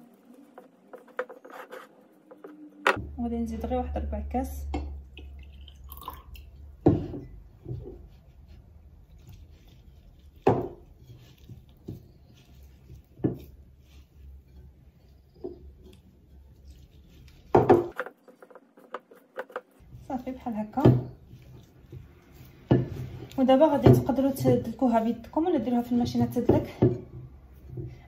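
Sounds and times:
dough thumping in bowl: 0:10.3 - 0:14.8, 0:17.3 - 0:24.9.

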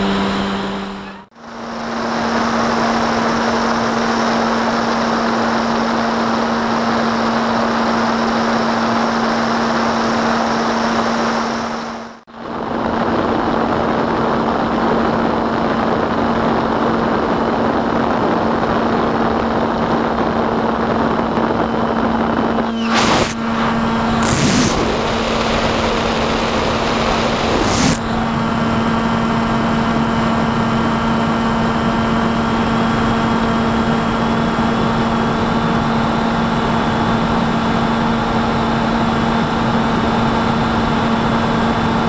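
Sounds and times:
electric motor and propeller hum: 0:00.0 - 0:14.0, 0:19.6 - 0:34.8
rushing wind noise: 0:12.4 - 0:30.6
short whooshes: 0:22.7 - 0:25.5, 0:27.4 - 0:28.2.

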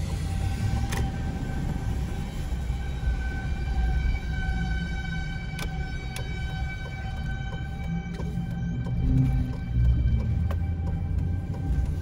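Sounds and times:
car road rumble: 0:00.0 - 0:12.0
distant warning siren tone: 0:00.0 - 0:12.0.

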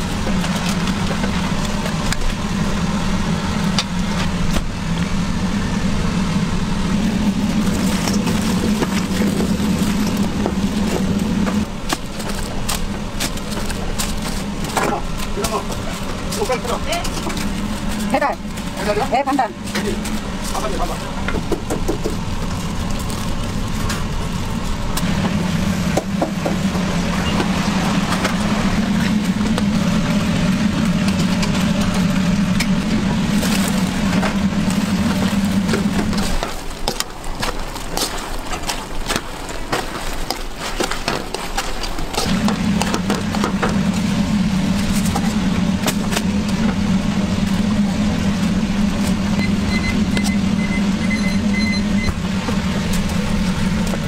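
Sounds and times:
low roar of wok burner: 0:00.0 - 0:54.0.

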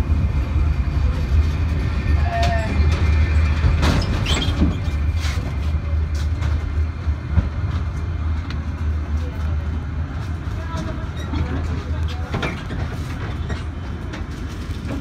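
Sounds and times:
tram rumbling: 0:00.0 - 0:15.0
wheel squeal: 0:01.9 - 0:05.1.

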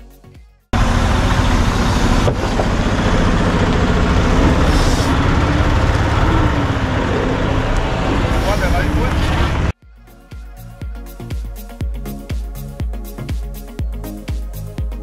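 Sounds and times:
diesel truck engine passing: 0:00.8 - 0:09.8.

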